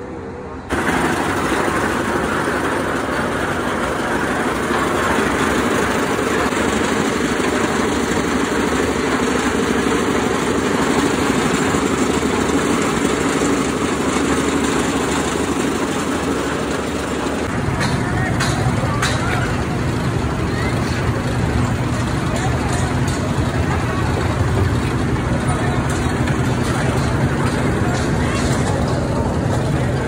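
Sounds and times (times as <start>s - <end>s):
construction machinery engine running: 0.0s - 30.0s.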